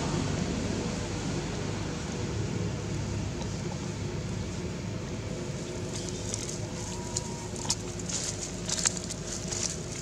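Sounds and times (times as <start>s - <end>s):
low outdoor rumble: 0.0s - 10.0s
dry leaves crackling: 5.6s - 10.0s.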